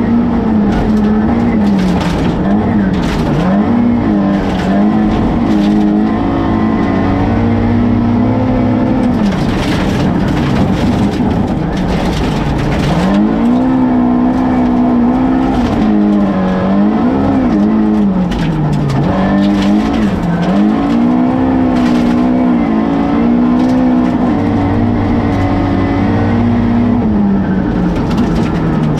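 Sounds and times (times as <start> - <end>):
rally car engine revving: 0.0 - 28.9.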